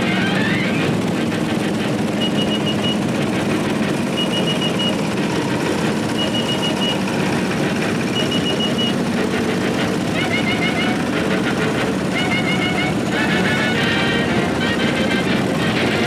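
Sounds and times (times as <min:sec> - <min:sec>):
small tractor engines running: 0:00.0 - 0:16.0
high electronic beeps: 0:02.2 - 0:03.0, 0:04.1 - 0:05.0, 0:06.1 - 0:07.0, 0:08.1 - 0:09.0.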